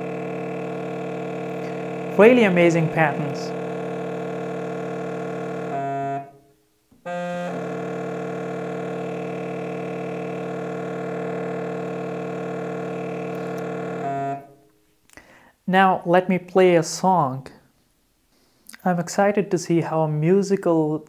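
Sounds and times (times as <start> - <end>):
buzzy test tones through loudspeaker: 0.0 - 14.6.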